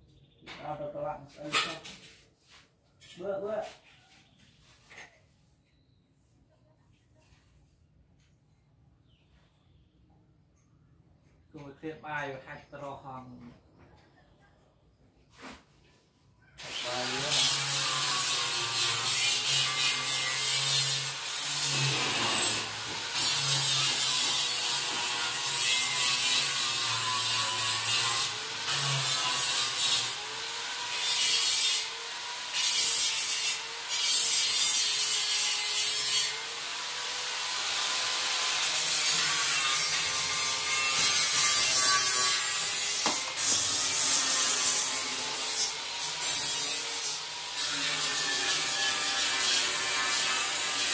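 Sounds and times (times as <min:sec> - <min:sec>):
wood sanding rasp: 0:16.6 - 0:50.9.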